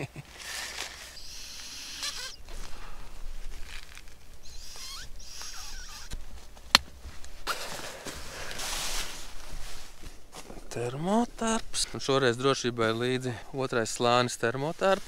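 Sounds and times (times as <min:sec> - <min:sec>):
short squeaks: 0:01.1 - 0:02.5, 0:04.4 - 0:06.2.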